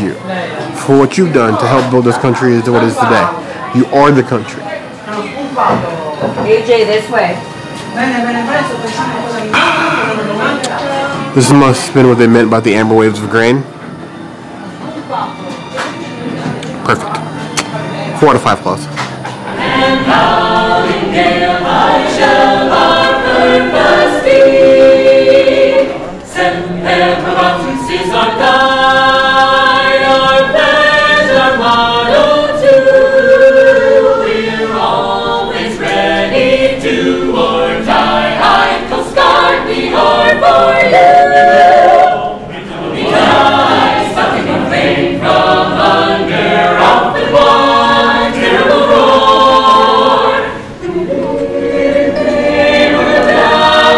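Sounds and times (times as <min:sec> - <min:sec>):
choir singing in harmony: 0:00.0 - 0:53.9.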